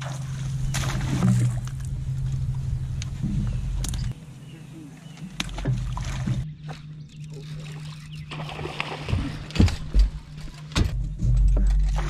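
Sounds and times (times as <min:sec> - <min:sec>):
steady low hum: 0:00.0 - 0:12.0
fish thrashing and splashing: 0:05.3 - 0:10.6
knocks on boat: 0:05.5 - 0:06.4, 0:09.0 - 0:11.0.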